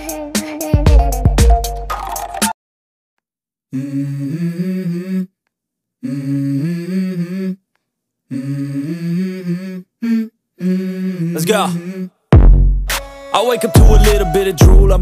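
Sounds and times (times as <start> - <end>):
person humming a melody: 0.0 - 1.6, 3.7 - 5.4, 6.0 - 7.6, 8.3 - 12.2, 13.6 - 15.0.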